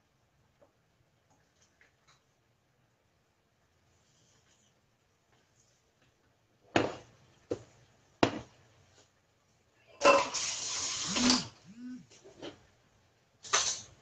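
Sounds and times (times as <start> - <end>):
wooden spatula knocking on pot: 6.8 - 8.5.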